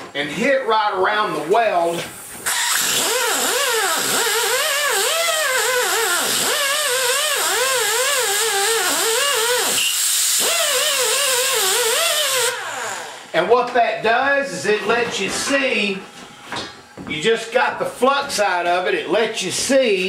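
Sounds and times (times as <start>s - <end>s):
die grinder whine: 2.5s - 13.3s.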